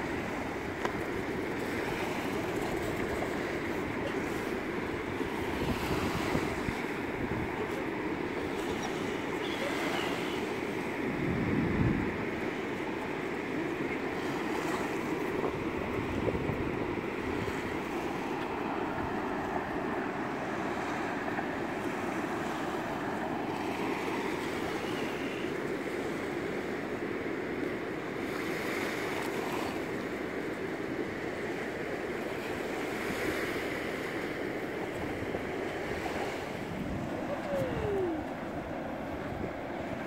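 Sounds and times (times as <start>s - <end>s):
wind buffeting microphone: 0.0s - 12.8s, 14.4s - 20.1s, 34.3s - 40.0s
sea surf on beach: 0.0s - 40.0s.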